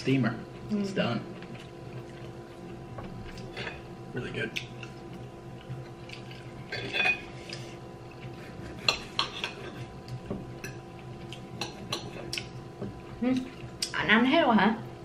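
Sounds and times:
faint steady hum: 0.0 - 15.0
knife and fork scraping on plate: 8.7 - 10.0.

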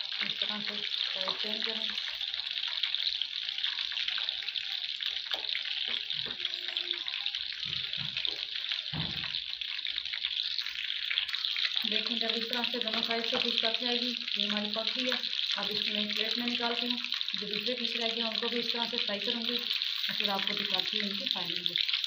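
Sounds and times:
fish deep-frying in oil: 0.0 - 22.0.

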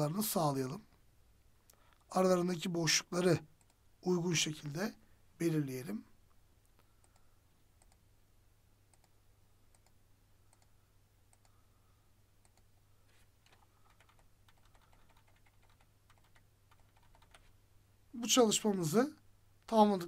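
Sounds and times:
low steady hum: 0.0 - 20.0
computer mouse and keyboard clicks: 6.8 - 8.0, 12.4 - 17.5.

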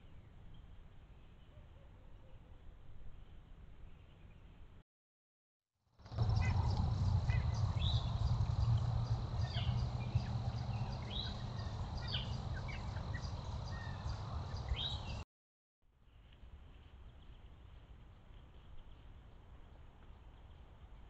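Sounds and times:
songbirds chirping: 0.0 - 4.8, 6.0 - 15.2
steady low rumble: 6.1 - 15.2.

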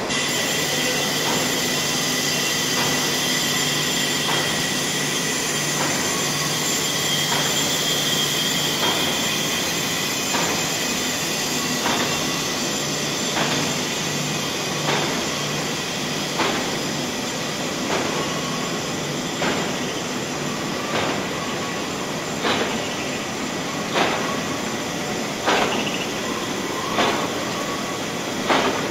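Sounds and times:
machinery running: 0.0 - 28.9
regular mechanical knock: 22.4 - 23.0, 23.9 - 24.3, 25.4 - 26.0, 28.4 - 28.9.

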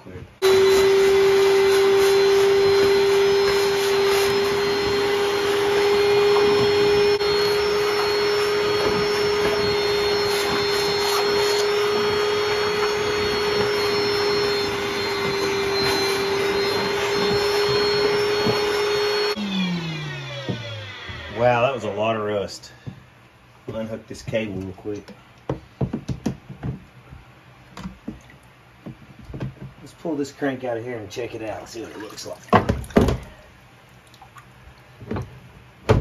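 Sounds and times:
shop vacuum whining: 0.0 - 23.0
nozzle sucking water: 0.4 - 19.4.

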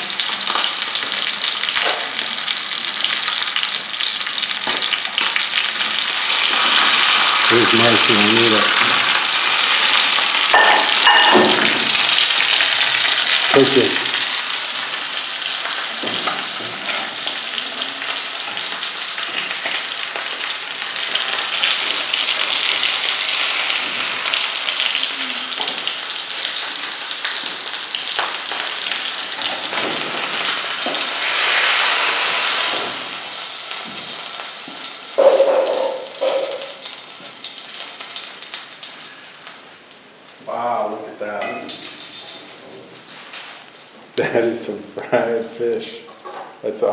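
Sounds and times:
fish sizzling in hot oil: 0.0 - 44.7.

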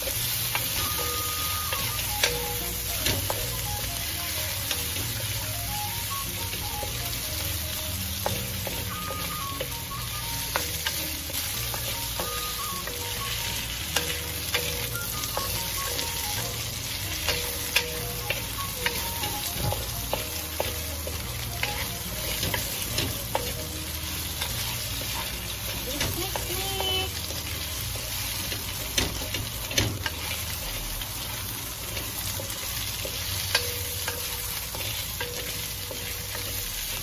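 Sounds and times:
chicken sizzling in a pan: 0.0 - 37.0.

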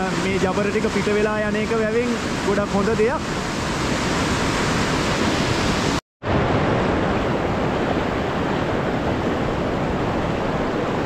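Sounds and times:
water rushing through spillway: 0.0 - 6.0.

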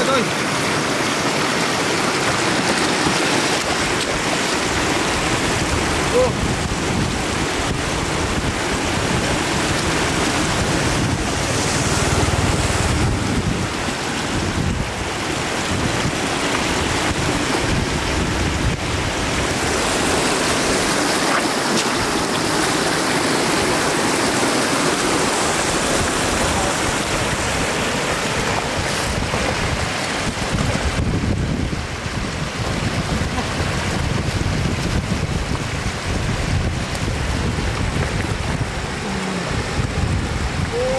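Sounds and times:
floodwater rushing: 0.0 - 40.9
splashing of fish trap in water: 1.0 - 5.4, 19.6 - 26.4.

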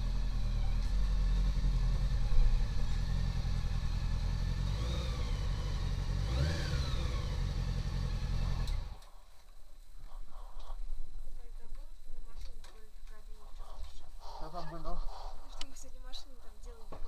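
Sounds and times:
motorcycle engine idling: 0.0 - 9.0.

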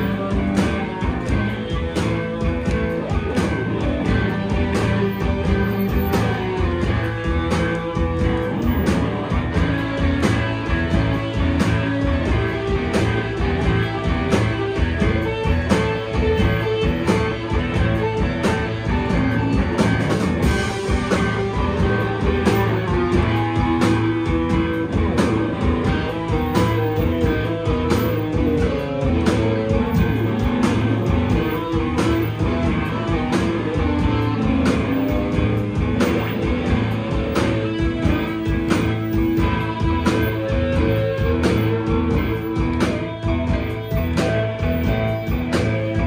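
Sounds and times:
drum beat: 0.0 - 46.0
electric guitars: 0.0 - 46.0.

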